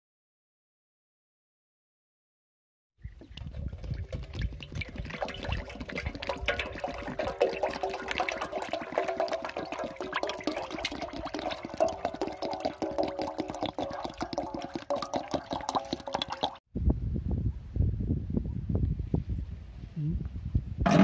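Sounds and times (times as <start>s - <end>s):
oil pouring and gurgling: 3.1s - 16.6s.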